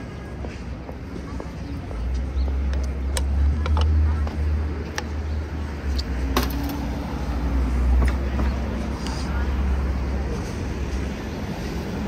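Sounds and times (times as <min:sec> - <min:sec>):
low street rumble: 0:00.0 - 0:12.0
snatches of voices: 0:08.8 - 0:10.7.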